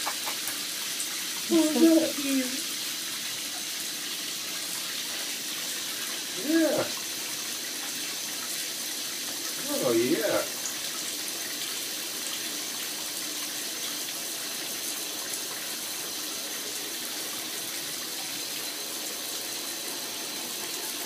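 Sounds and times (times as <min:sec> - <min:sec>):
shower water running into bathtub: 0:00.0 - 0:21.0.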